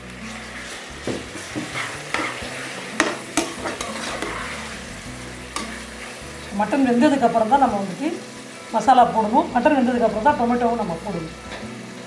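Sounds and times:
meat and onions sizzling: 0.0s - 12.0s
ladle scraping pot: 0.3s - 6.5s
ladle clanking on pot: 1.0s - 4.4s.

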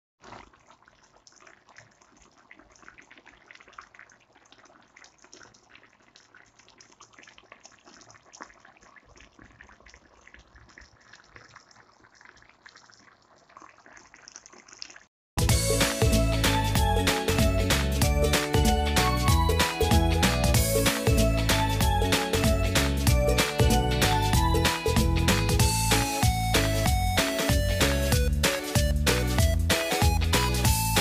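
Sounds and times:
curry sauce simmering in a wok: 0.2s - 15.1s
bubbles popping: 0.2s - 30.4s.

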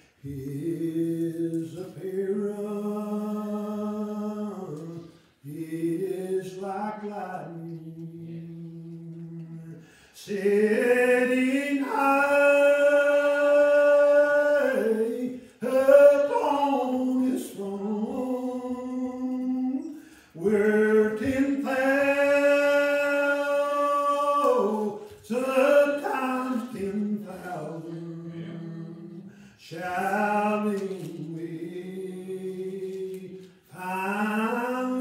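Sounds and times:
person singing unaccompanied: 0.4s - 35.0s.

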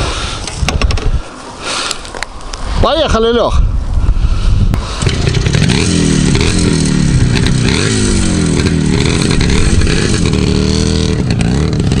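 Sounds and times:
motorcycle engine revving: 4.8s - 12.0s.

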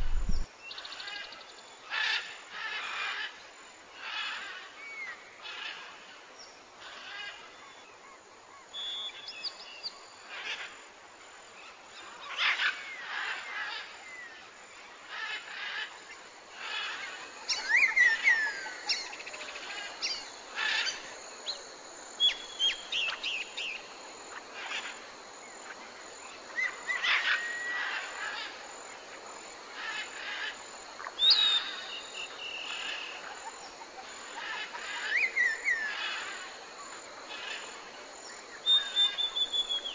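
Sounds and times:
faint outdoor hiss: 0.0s - 39.9s
songbirds chirping and singing: 11.7s - 28.6s.

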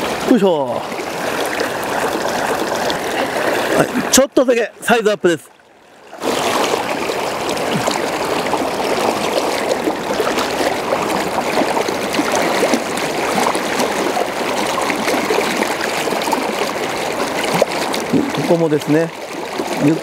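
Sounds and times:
water churning around wader: 0.0s - 20.0s
river rushing through riffle: 6.2s - 19.0s.

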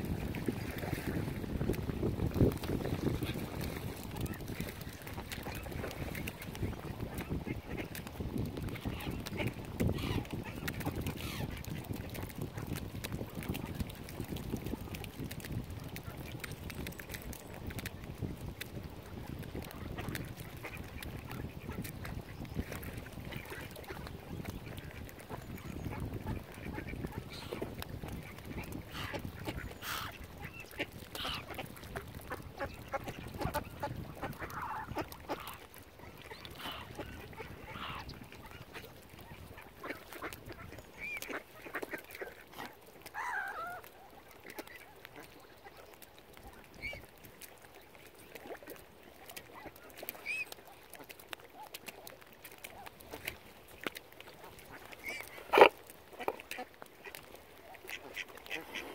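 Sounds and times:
ducks quacking: 3.0s - 8.1s, 8.7s - 12.8s, 19.6s - 45.9s, 52.7s - 58.9s.

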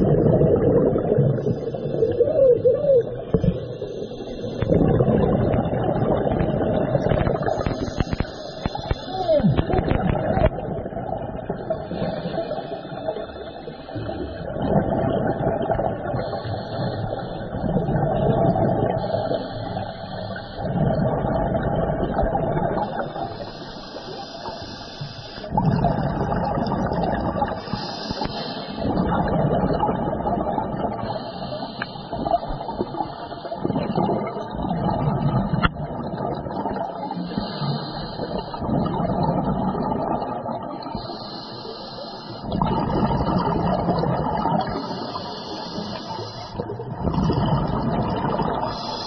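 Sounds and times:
exhaled bubbles rushing: 0.0s - 23.5s, 25.4s - 31.2s, 32.1s - 37.2s, 38.2s - 41.0s, 42.4s - 49.0s
diver breathing through regulator: 16.1s - 17.6s, 18.9s - 21.3s, 22.8s - 29.1s, 30.9s - 33.8s, 37.1s - 38.7s, 40.8s - 49.0s.

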